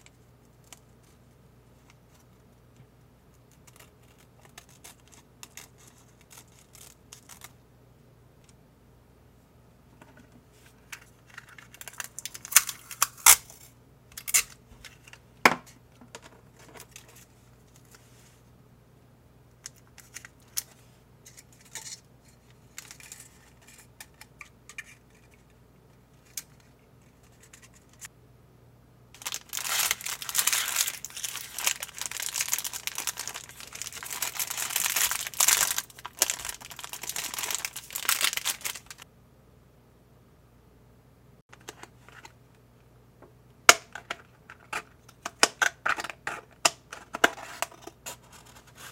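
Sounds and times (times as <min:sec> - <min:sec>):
cellophane crinkling: 0:03.5 - 0:07.5, 0:29.2 - 0:39.0
packaging crackling and tearing: 0:11.4 - 0:13.5, 0:29.2 - 0:39.0
scissors snipping plastic bag: 0:29.2 - 0:39.0.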